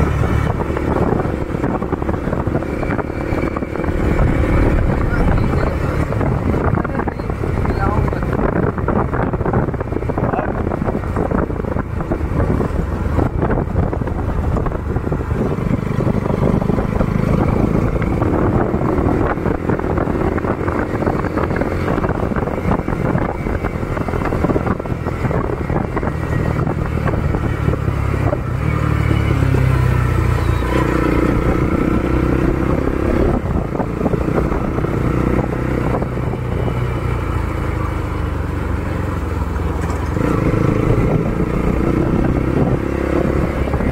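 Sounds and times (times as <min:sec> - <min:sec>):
motorcycle engine revving: 0:00.0 - 0:43.9.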